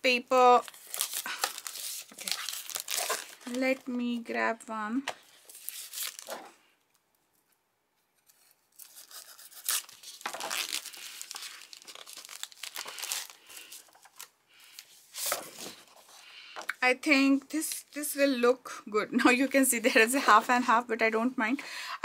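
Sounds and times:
cardstock rustling and crinkling: 0:00.5 - 0:04.0, 0:05.1 - 0:06.6, 0:08.2 - 0:16.2.

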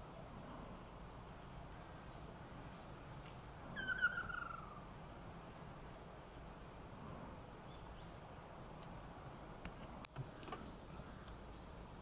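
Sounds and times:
kingfisher trilled call: 0:03.8 - 0:04.8.

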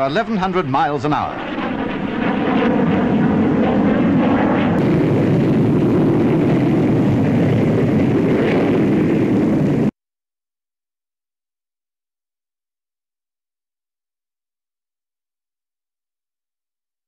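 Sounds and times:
jet engine roar: 0:00.0 - 0:09.9.

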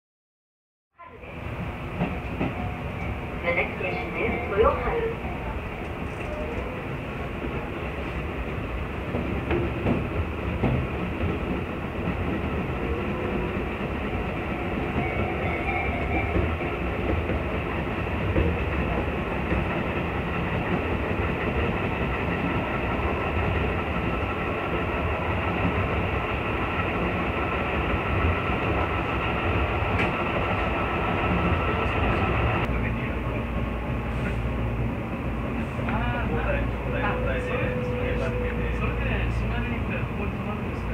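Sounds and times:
train wheels rumbling: 0:01.0 - 0:40.9.

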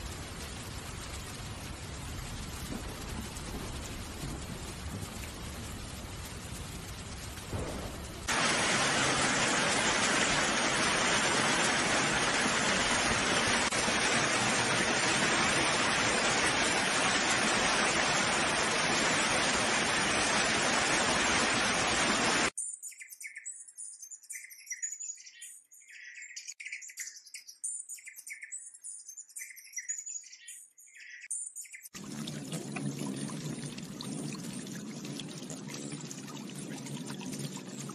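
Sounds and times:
loud hiss of rushing water: 0:07.4 - 0:22.6
high bird chirps: 0:22.6 - 0:32.0.

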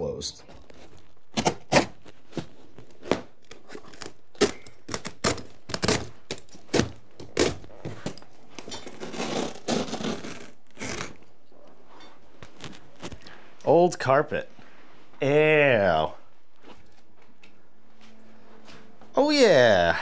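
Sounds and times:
carpet tearing: 0:00.5 - 0:11.2.

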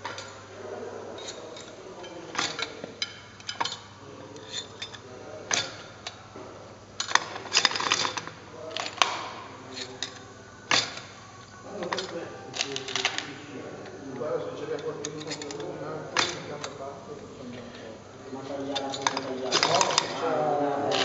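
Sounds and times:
wire spokes clinking against metal: 0:01.1 - 0:06.3, 0:14.5 - 0:16.8, 0:18.4 - 0:21.0.

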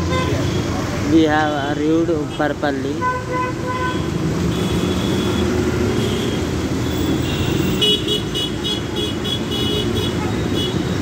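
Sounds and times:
bus engine and road noise: 0:00.0 - 0:11.0.

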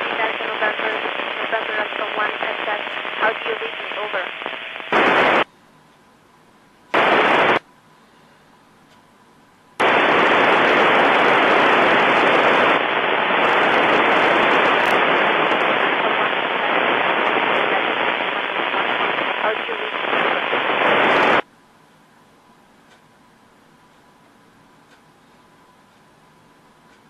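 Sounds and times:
radio static hiss: 0:00.0 - 0:05.5, 0:06.9 - 0:07.7, 0:09.8 - 0:21.5.

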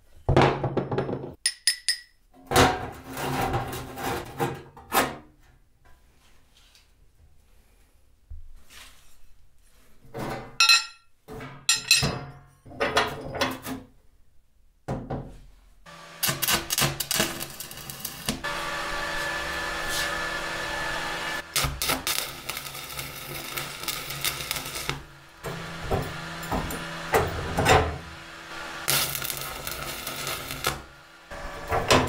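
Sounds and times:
metal bars clattering on steel plate: 0:10.2 - 0:13.6
welding arc crackling: 0:15.9 - 0:32.0.

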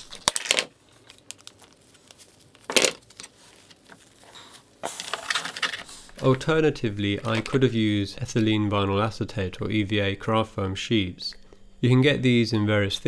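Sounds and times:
bristles rustling: 0:00.0 - 0:06.6.

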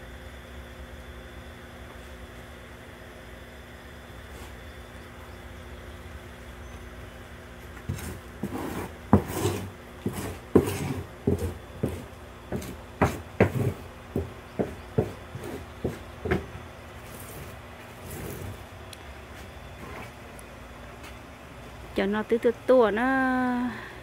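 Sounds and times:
rubbing sounds: 0:07.8 - 0:18.6.

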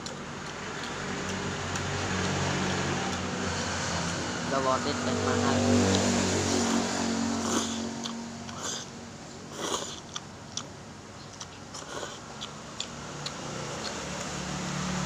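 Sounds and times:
person slurping and chewing: 0:05.7 - 0:14.4.

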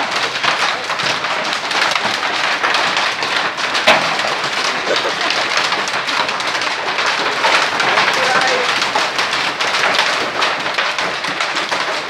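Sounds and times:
hail pelting the ground: 0:00.0 - 0:12.0.

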